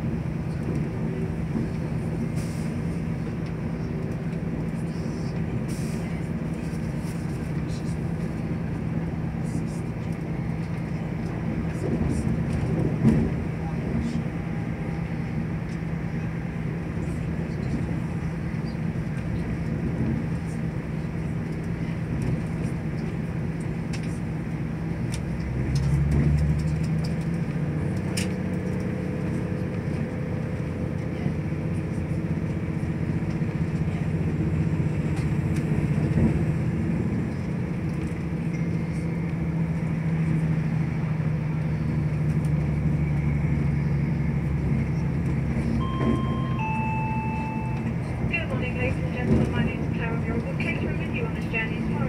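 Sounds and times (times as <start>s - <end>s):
train rumble with engine hum: 0.0s - 52.0s.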